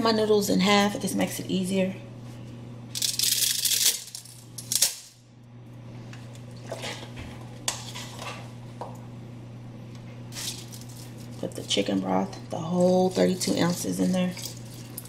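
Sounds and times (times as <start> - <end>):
low steady hum: 0.0 - 15.0
dry spaghetti crackling in a pot: 2.9 - 4.9, 10.3 - 15.0.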